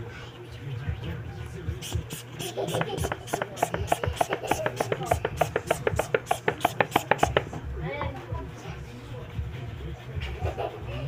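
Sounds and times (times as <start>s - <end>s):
fast sharp knocks: 2.0s - 7.6s.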